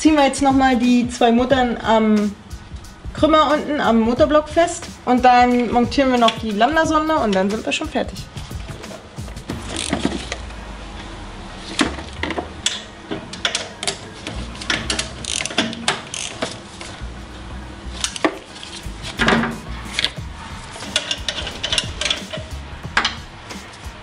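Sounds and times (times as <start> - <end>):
ratchet wrench clicking: 8.8 - 10.4, 14.6 - 16.6, 18.0 - 23.8.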